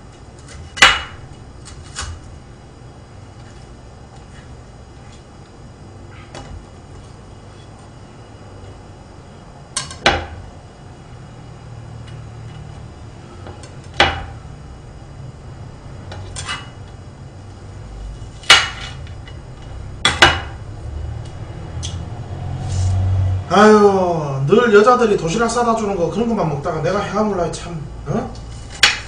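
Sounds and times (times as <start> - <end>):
knife chopping on cutting board: 28.6 - 29.0.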